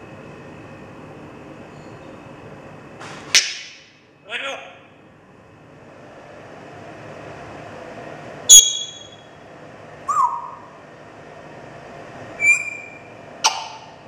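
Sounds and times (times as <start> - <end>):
parrot calls: 8.5 - 9.2, 10.1 - 10.7, 12.4 - 14.0
parrot high whistle: 8.5 - 9.2, 10.1 - 10.6, 12.4 - 13.8.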